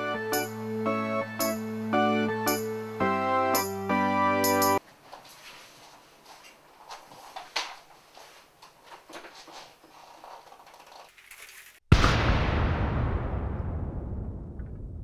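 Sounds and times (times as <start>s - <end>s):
loud boom sound effect: 11.9s - 15.0s.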